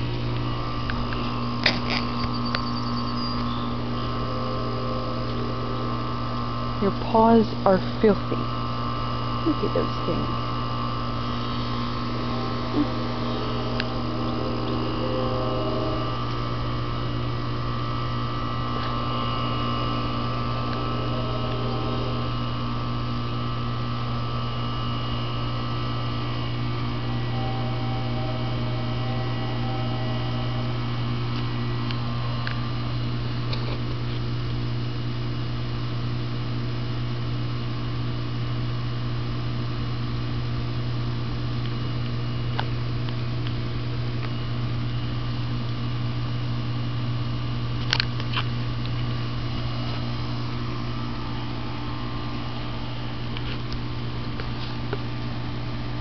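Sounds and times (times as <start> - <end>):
air conditioner humming: 0.0 - 56.0
faint tones: 0.1 - 33.1.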